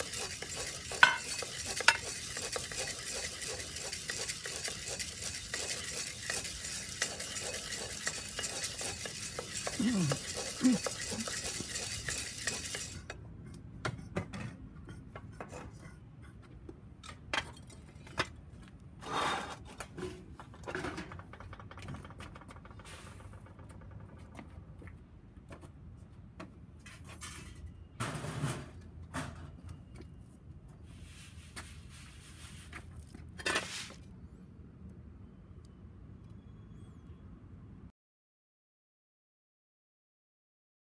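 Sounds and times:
clicks and knocks of pot: 0:00.0 - 0:03.6
coffee beans clattering: 0:00.0 - 0:13.1.

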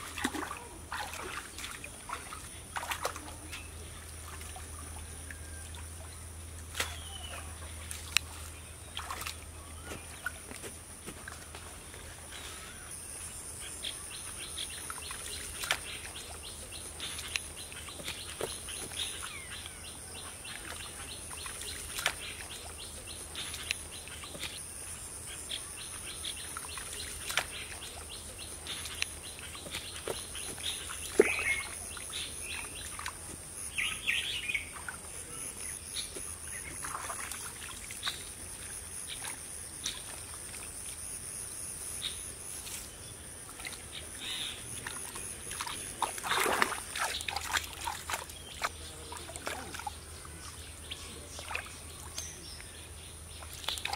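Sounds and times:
birds chirping: 0:00.0 - 0:53.9
mud squelching by hand: 0:06.6 - 0:12.9, 0:14.1 - 0:24.6, 0:25.9 - 0:41.0, 0:42.5 - 0:52.7.

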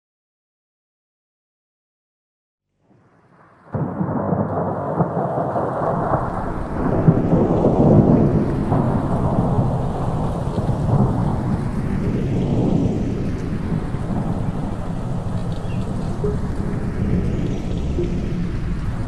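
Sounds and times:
wind buffeting: 0:03.8 - 0:19.0
helicopter rumbling roar: 0:11.0 - 0:19.0.

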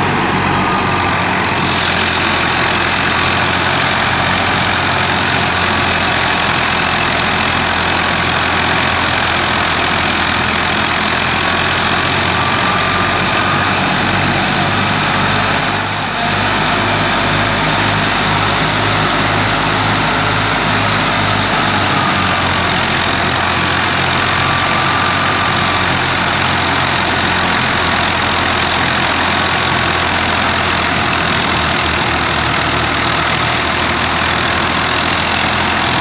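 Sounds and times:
thresher rushing noise: 0:00.0 - 0:28.2
tractor engine running: 0:00.0 - 0:36.0.

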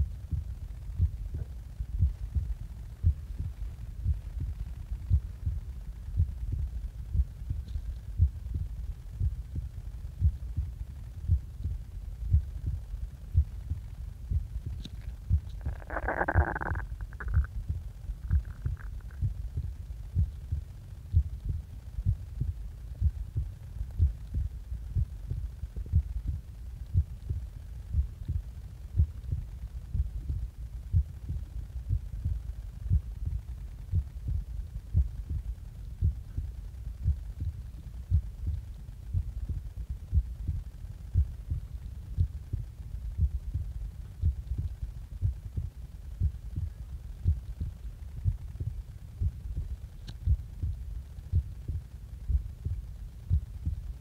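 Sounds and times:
heartbeat thumps: 0:00.0 - 0:54.0.

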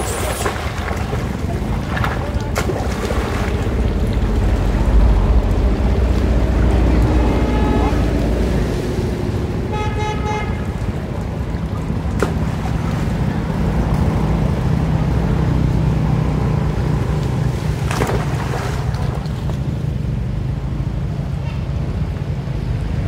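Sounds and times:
sharp knocks or splashes: 0:00.0 - 0:09.3, 0:10.5 - 0:14.5, 0:17.2 - 0:19.8
floodwater rushing: 0:00.0 - 0:23.0.

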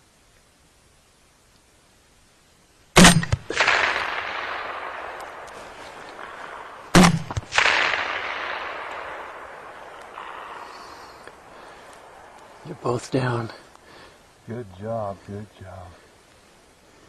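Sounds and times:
rolling gunshot echo: 0:03.0 - 0:12.7
rifle shots: 0:03.0 - 0:13.6
sharp crack: 0:03.0 - 0:14.2.

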